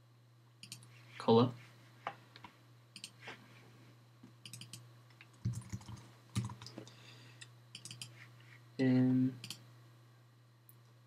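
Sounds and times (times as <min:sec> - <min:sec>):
keyboard keys tapping: 0:05.4 - 0:06.8.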